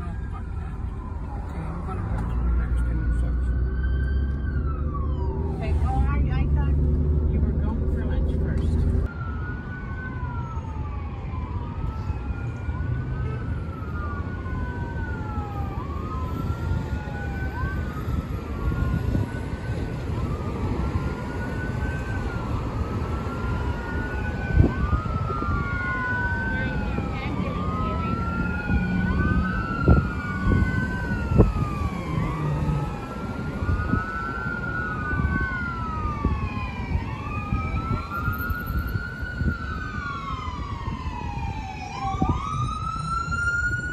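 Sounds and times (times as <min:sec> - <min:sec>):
emergency sirens wailing: 0:00.0 - 0:43.9
road traffic rumble: 0:00.0 - 0:43.9.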